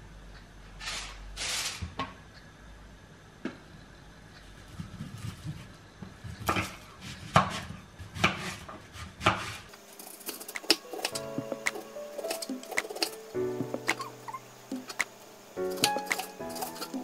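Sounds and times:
light background music: 10.6 - 17.0.

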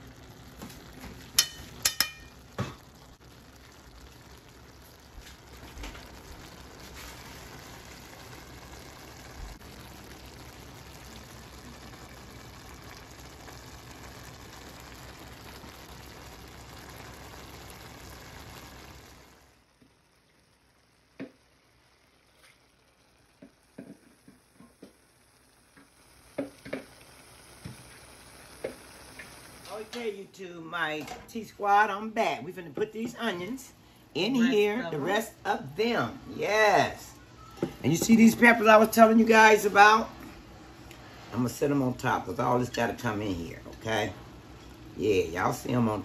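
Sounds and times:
meat sizzling in a skillet: 0.0 - 30.2
small clicks and pops: 21.1 - 21.5, 22.3 - 30.0.

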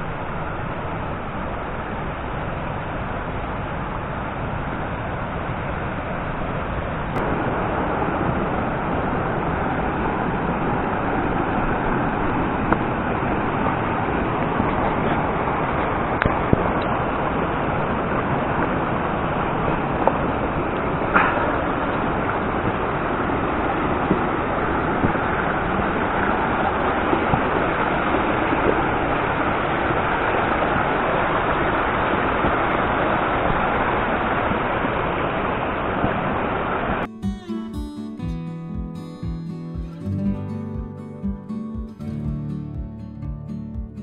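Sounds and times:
stream rushing over rocks: 0.0 - 37.1.

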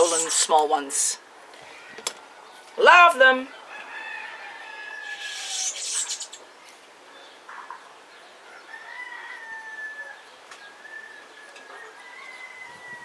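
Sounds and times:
rooster crowing: 3.6 - 5.5, 8.4 - 13.0.

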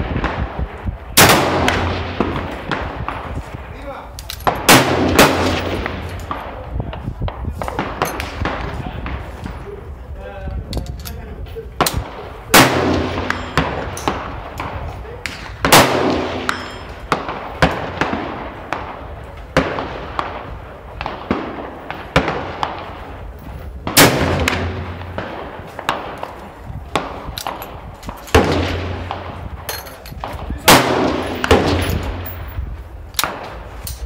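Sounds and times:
loud rifle shots with echo: 0.0 - 3.7, 4.4 - 7.0, 7.6 - 9.4, 11.8 - 32.6
faint distant gunshots: 11.9 - 23.1, 23.8 - 27.6.

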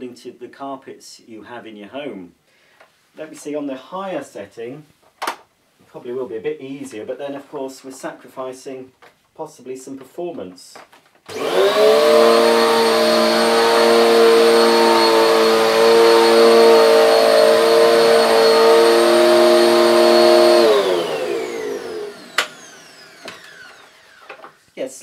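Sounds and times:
vacuum cleaner motor running: 11.3 - 24.6.

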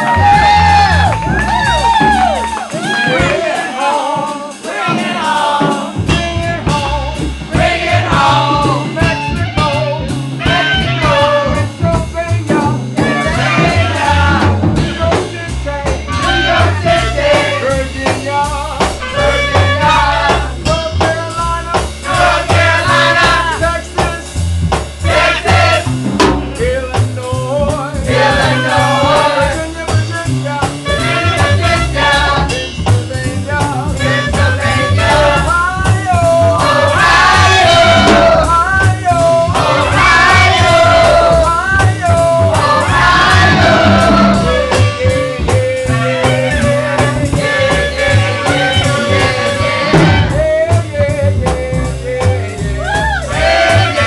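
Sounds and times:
double bass line: 0.0 - 54.0
percussion: 0.0 - 54.0.

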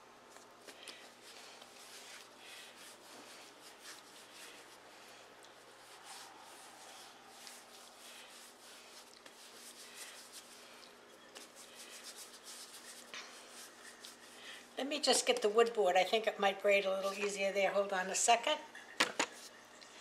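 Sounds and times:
hands rolling dough on countertop: 0.3 - 15.6.

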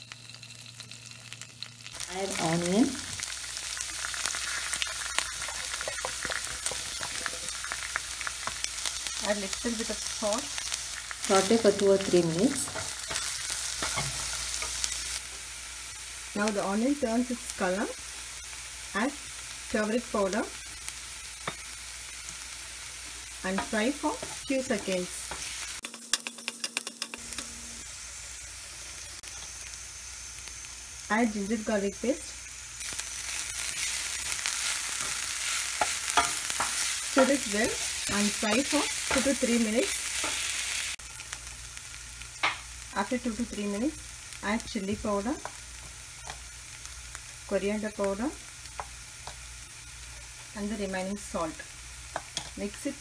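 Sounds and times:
onion frying in hot oil: 0.0 - 53.0.

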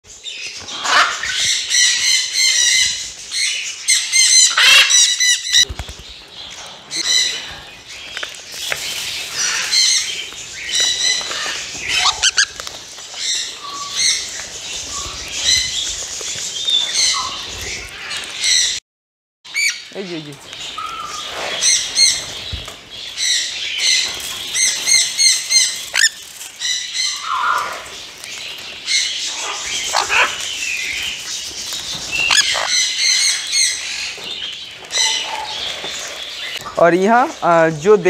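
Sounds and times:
parrots squawking: 0.7 - 5.7, 6.9 - 7.8, 9.3 - 15.8, 19.5 - 19.9, 20.8 - 22.4, 23.2 - 27.9, 28.9 - 31.2, 32.1 - 34.2, 34.9 - 36.7.

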